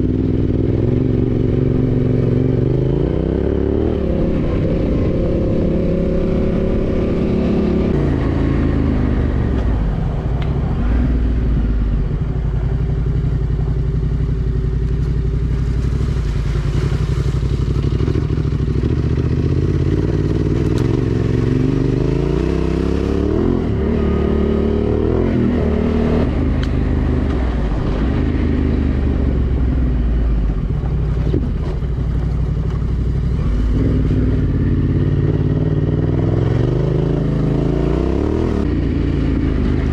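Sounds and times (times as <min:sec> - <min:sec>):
motorcycle engine revving: 0:00.0 - 0:39.9
wind noise: 0:00.6 - 0:12.7.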